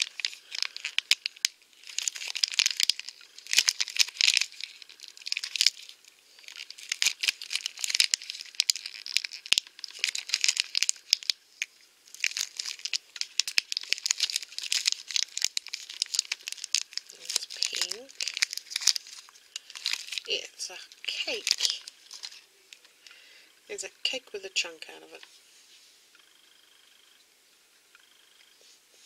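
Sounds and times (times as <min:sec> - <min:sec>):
plastic wrapping crumpled and torn: 0:00.0 - 0:22.8.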